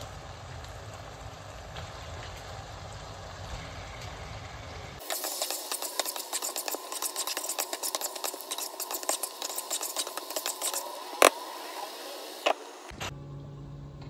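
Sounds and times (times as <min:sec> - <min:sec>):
spatula scraping a wok: 0:05.0 - 0:12.8.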